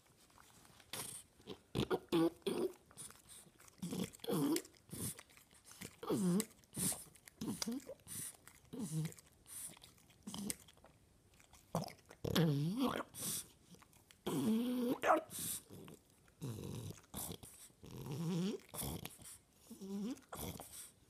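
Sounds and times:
dog grumbling: 1.0 - 2.8, 14.2 - 19.1.

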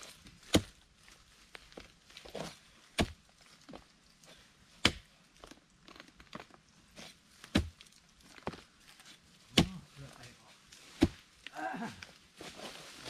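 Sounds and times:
spade thunking into hard earth: 2.3 - 3.2, 4.8 - 5.1, 7.4 - 7.8.

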